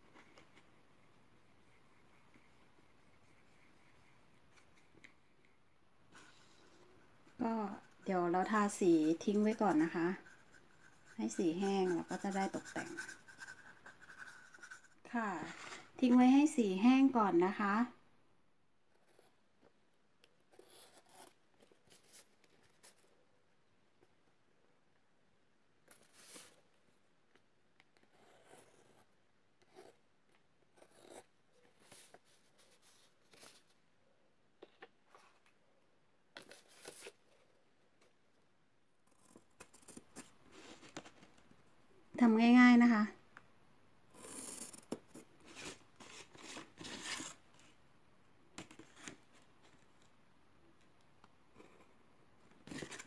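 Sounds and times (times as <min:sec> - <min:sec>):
pencil scratching on paper: 0:01.4 - 0:04.9, 0:06.1 - 0:16.3, 0:20.5 - 0:23.1, 0:28.0 - 0:30.0, 0:30.6 - 0:33.6, 0:44.2 - 0:47.4.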